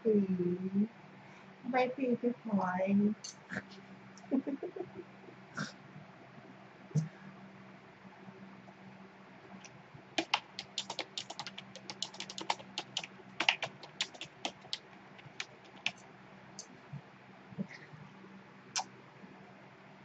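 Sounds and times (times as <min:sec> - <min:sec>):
keyboard typing: 0:10.2 - 0:16.0.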